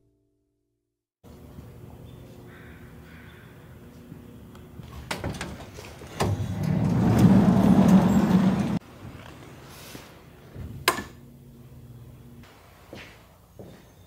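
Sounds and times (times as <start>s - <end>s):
sliding door scraping open: 5.1s - 8.8s.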